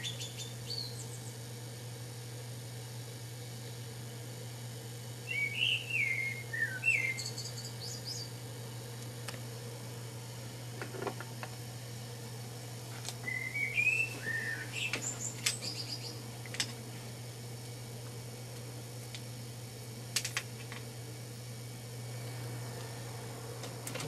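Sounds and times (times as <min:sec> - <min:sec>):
small bird chirping: 0:00.0 - 0:01.3, 0:05.3 - 0:08.4, 0:13.3 - 0:16.2
steady low hum: 0:00.0 - 0:24.0.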